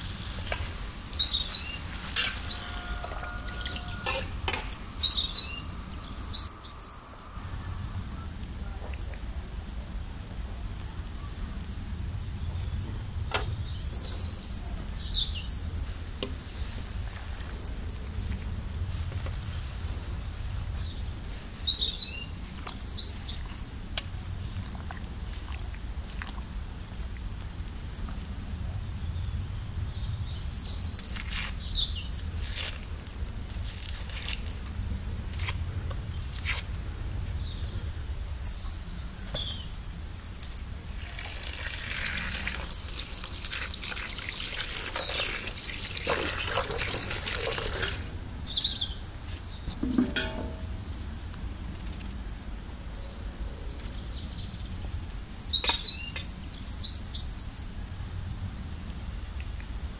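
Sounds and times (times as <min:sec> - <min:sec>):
small birds chirping: 0:00.0 - 0:15.8, 0:19.2 - 0:24.6, 0:35.4 - 0:57.8
tap water running into bowl: 0:41.0 - 0:48.1.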